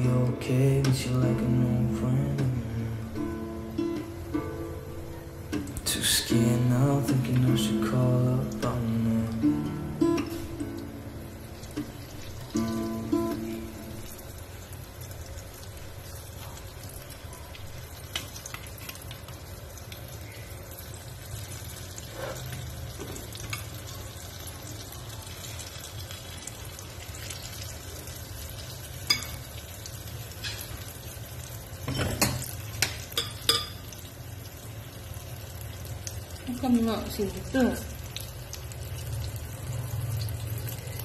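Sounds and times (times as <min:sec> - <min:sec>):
batter deep-frying in oil: 0:00.0 - 0:41.0.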